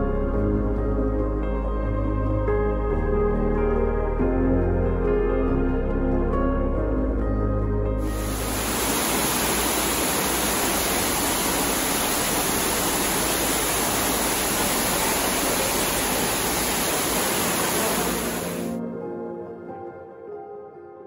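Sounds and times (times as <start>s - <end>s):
water falling into a pool: 8.0s - 18.8s.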